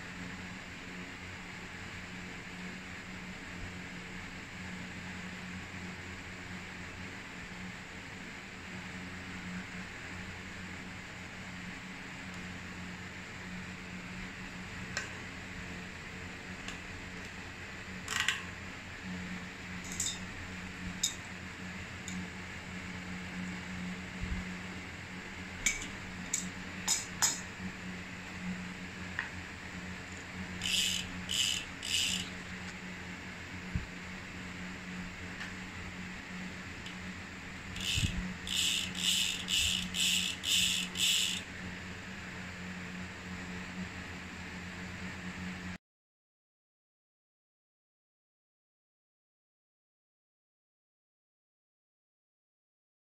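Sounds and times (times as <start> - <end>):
faint steady hum: 0.0 - 45.8
bicycle freehub ratcheting: 30.6 - 32.4, 37.8 - 41.5.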